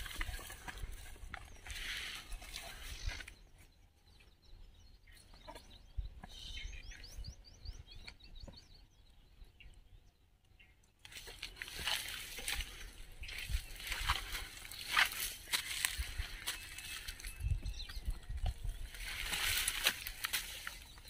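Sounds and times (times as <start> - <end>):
footsteps through dry scrub: 0.0 - 3.4, 11.1 - 21.0
twigs and leaves crackling: 0.0 - 3.5, 11.0 - 21.0
bird chirping: 0.0 - 21.0.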